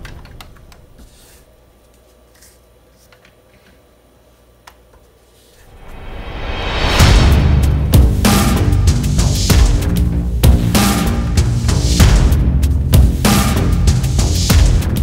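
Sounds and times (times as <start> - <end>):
background music: 5.8 - 15.0.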